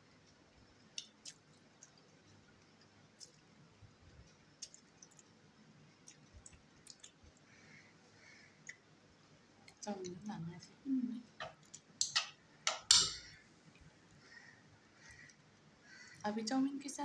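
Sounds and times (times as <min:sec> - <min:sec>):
person chewing with mouth closed: 0:01.0 - 0:05.3, 0:06.0 - 0:07.5.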